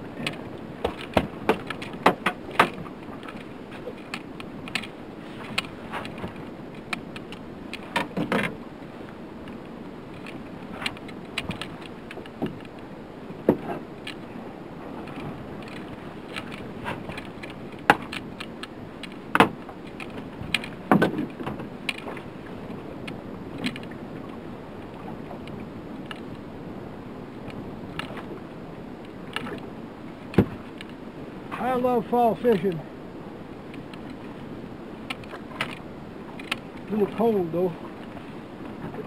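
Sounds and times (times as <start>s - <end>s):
water lapping against boat hull: 0.0s - 39.0s
wind and sea: 0.0s - 39.0s
sharp knocks and clicks: 0.2s - 8.6s, 15.1s - 22.2s.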